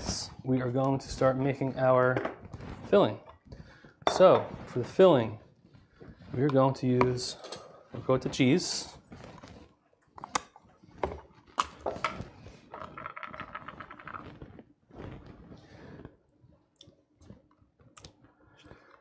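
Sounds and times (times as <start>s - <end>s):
plastic tub handled: 6.0s - 7.4s.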